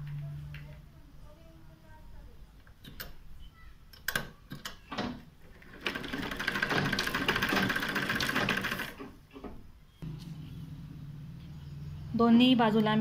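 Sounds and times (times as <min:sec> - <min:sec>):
sewing machine stitching: 0:05.5 - 0:09.2.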